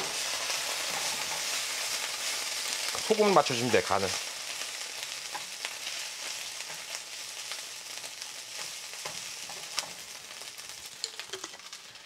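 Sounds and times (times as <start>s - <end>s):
rice sizzling in frying pan: 0.0s - 12.0s.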